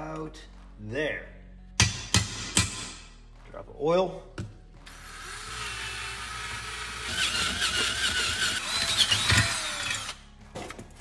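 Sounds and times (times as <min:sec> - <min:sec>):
drill whining and grinding metal: 0:04.9 - 0:10.2.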